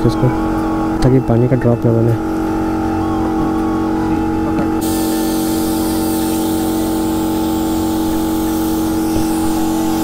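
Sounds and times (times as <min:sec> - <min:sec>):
steady hum: 0:00.0 - 0:10.0
paint spray gun hissing: 0:04.8 - 0:10.0.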